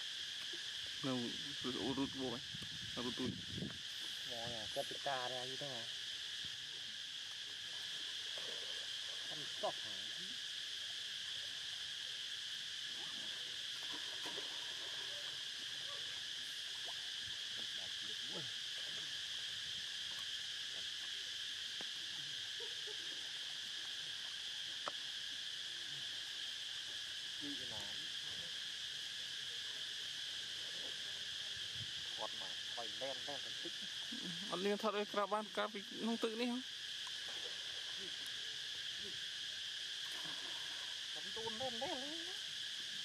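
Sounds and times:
high-pitched insect chorus: 0:00.0 - 0:43.0.

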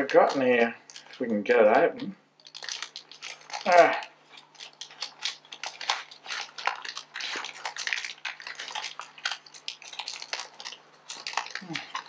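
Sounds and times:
paper envelope tearing: 0:02.5 - 0:12.0.

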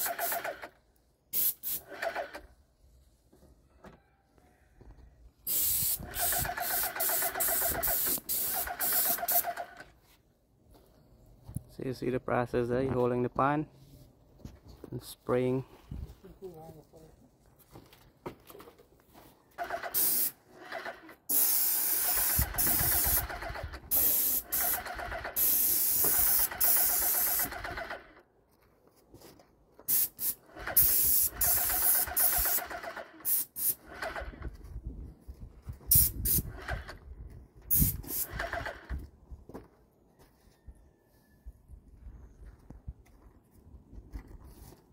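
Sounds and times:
paint spray gun hissing: 0:01.4 - 0:01.9, 0:05.5 - 0:09.7, 0:19.8 - 0:20.4, 0:21.3 - 0:27.6, 0:29.9 - 0:33.8, 0:37.7 - 0:38.5.

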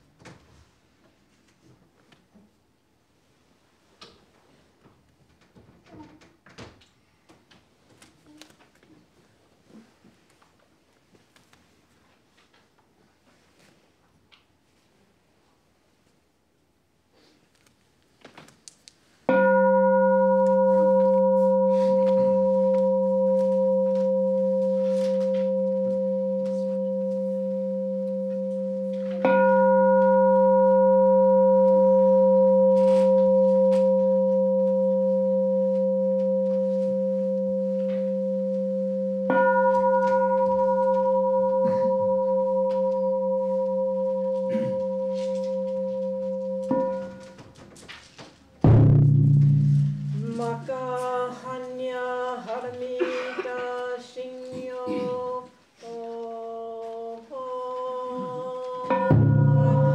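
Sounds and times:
temple bowl bell ringing: 0:19.3 - 0:47.4, 0:48.6 - 0:50.8, 0:58.7 - 0:59.9.

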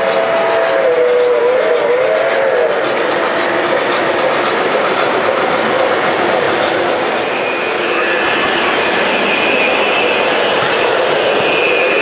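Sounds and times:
two-tone model train whistle: 0:00.0 - 0:03.0, 0:07.2 - 0:12.0
model train wheels rumbling on track: 0:00.0 - 0:12.0.

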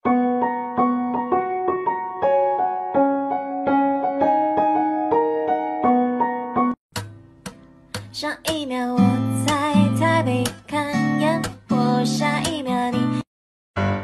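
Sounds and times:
piano melody: 0:00.0 - 0:06.8, 0:13.8 - 0:14.0.

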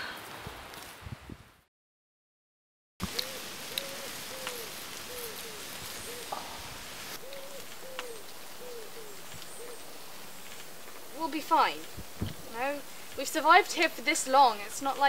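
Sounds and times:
steady outdoor hiss: 0:03.0 - 0:15.0
pigeon cooing: 0:03.1 - 0:09.9.

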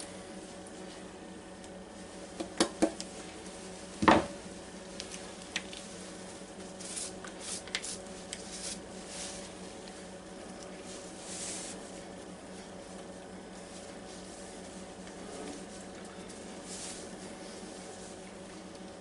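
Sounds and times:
faint steady hum: 0:00.0 - 0:19.0
faint scraping and rustling: 0:05.8 - 0:10.1, 0:10.7 - 0:18.5.

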